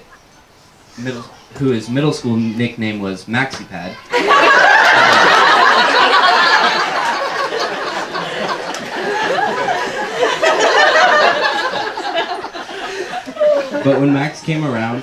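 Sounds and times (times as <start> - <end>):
crowd laughing loudly: 4.1 - 14.4.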